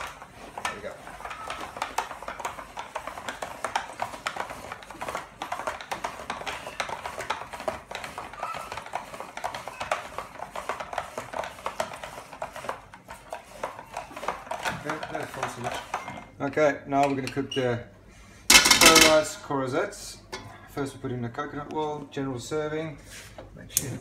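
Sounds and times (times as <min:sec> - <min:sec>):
spiralizer clicking and scraping: 0:00.0 - 0:16.1.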